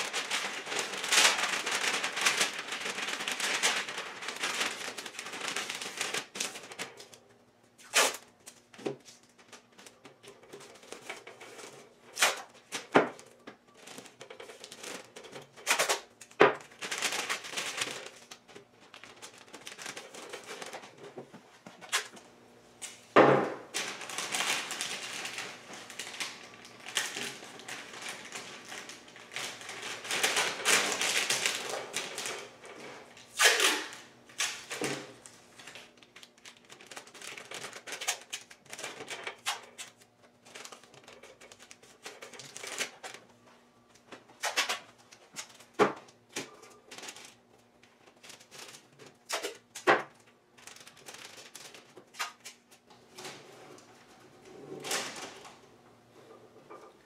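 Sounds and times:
masking tape ripping off roll: 0:00.0 - 0:07.2, 0:07.8 - 0:08.6, 0:12.1 - 0:12.9, 0:15.6 - 0:18.4, 0:33.3 - 0:34.8, 0:44.4 - 0:45.7
paper crinkling: 0:00.0 - 0:07.2, 0:07.8 - 0:22.2, 0:23.7 - 0:55.6.

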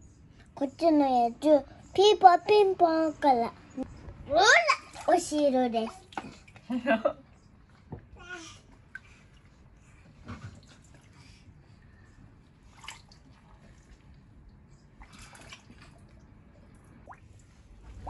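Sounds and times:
water drips and small splashes: 0:04.5 - 0:11.4, 0:12.5 - 0:18.0.

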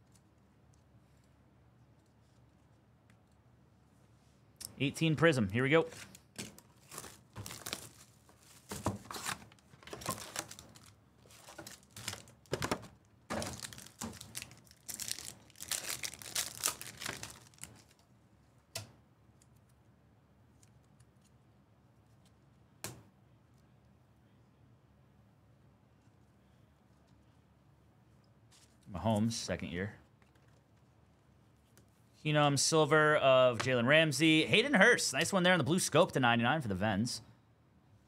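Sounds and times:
card pack wrappers tearing: 0:05.9 - 0:12.6, 0:13.3 - 0:18.0.

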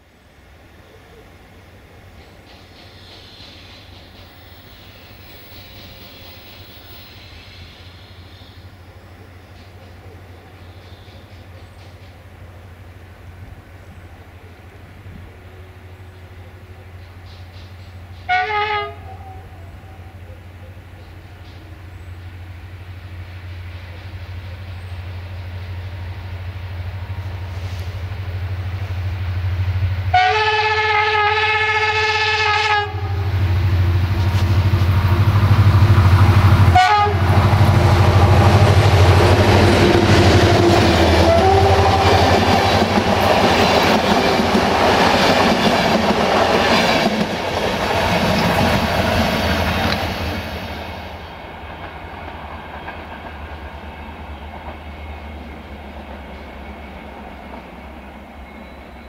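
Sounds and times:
train horn blast: 0:18.2 - 0:20.1, 0:30.1 - 0:33.6, 0:36.2 - 0:43.4
locomotive engine running: 0:32.9 - 0:58.0.

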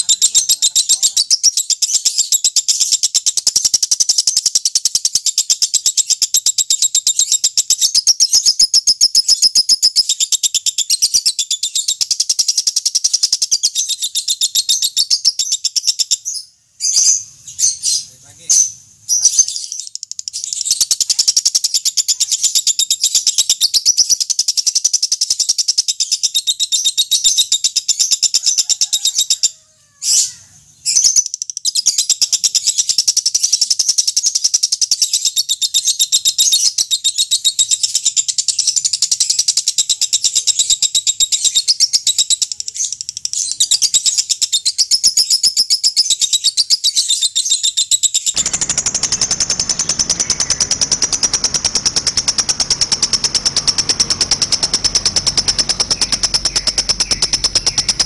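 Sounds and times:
lovebird chattering trill: 0:00.0 - 0:58.0
low noise: 0:48.4 - 0:58.0.

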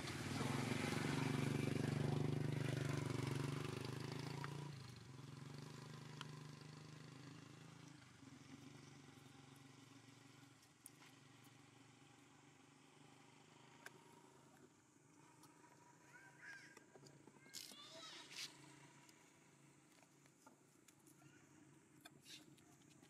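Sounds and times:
passing vehicle engine hum: 0:00.0 - 0:16.0.

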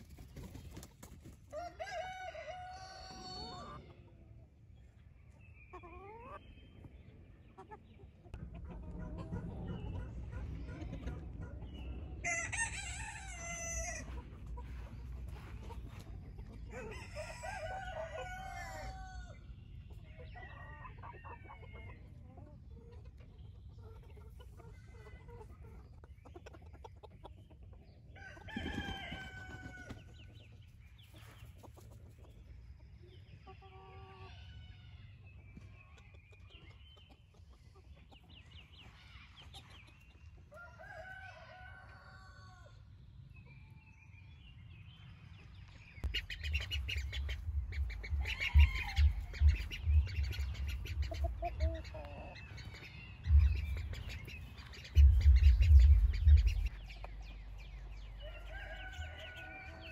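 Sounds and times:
hens clucking: 0:00.0 - 0:42.8, 0:46.0 - 0:59.9
roosters crowing: 0:01.5 - 0:04.0, 0:11.6 - 0:22.2, 0:28.1 - 0:30.3, 0:40.4 - 0:42.9, 0:46.1 - 0:56.8, 0:57.6 - 0:59.9.

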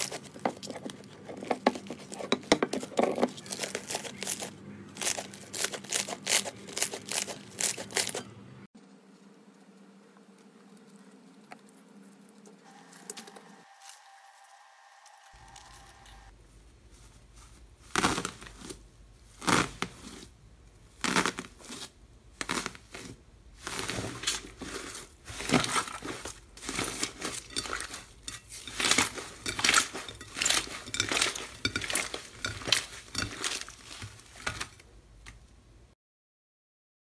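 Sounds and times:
aluminium foil crackling: 0:00.0 - 0:08.3, 0:21.0 - 0:35.4
slime squishing: 0:00.0 - 0:08.3, 0:16.9 - 0:35.5.

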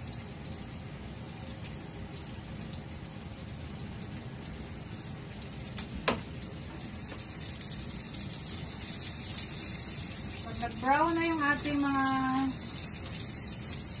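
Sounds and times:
garlic and onion sizzling in oil: 0:00.0 - 0:14.0
spatula stirring in pan: 0:06.8 - 0:14.0.

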